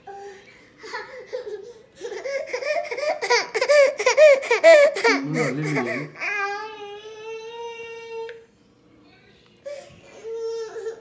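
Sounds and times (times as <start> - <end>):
lower voice: 5.2 - 6.2.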